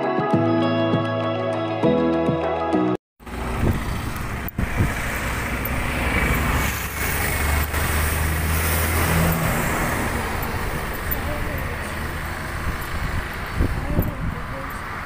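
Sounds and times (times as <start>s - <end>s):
road traffic rumble: 3.2s - 15.0s
vehicle engine: 3.2s - 15.0s.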